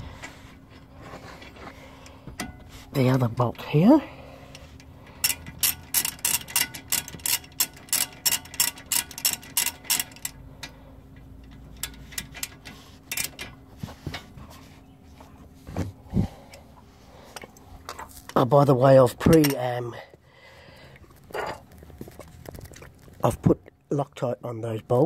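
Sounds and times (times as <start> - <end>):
socket ratchet clicking: 5.2 - 10.4.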